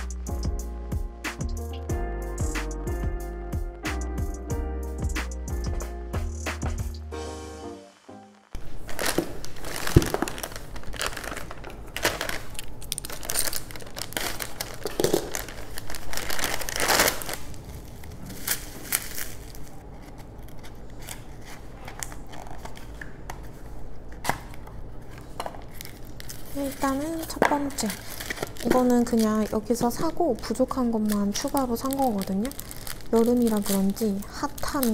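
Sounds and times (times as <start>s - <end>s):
packaging crinkling and tearing: 8.6s - 34.9s.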